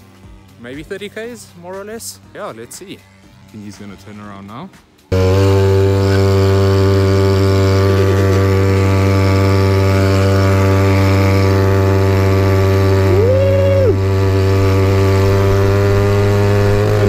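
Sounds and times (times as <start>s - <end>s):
scooter engine droning: 5.0s - 17.0s.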